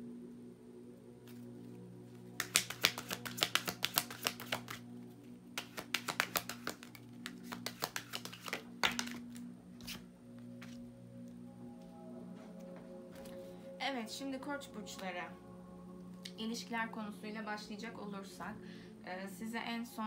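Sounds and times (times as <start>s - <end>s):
soft background music: 0.0s - 20.0s
cards being shuffled: 2.4s - 4.8s, 5.6s - 10.8s.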